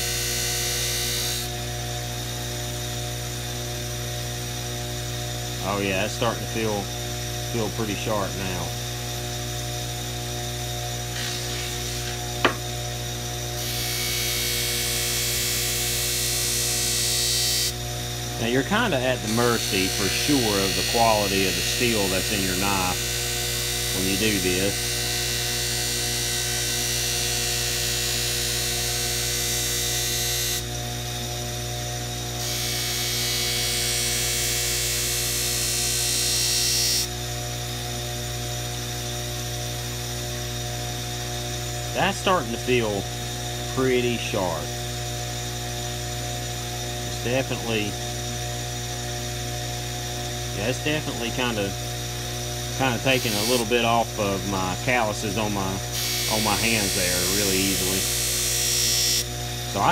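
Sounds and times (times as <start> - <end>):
bench grinder motor humming: 0.0 - 3.1, 4.2 - 31.4, 32.0 - 38.8, 39.6 - 59.9
knife hissing on buffing wheel: 11.0 - 12.7, 18.8 - 24.9, 52.7 - 54.4, 55.4 - 59.3
blade hissing on buffing wheel: 11.0 - 12.8, 13.6 - 17.8, 18.4 - 30.6, 32.4 - 37.1, 50.5 - 59.9.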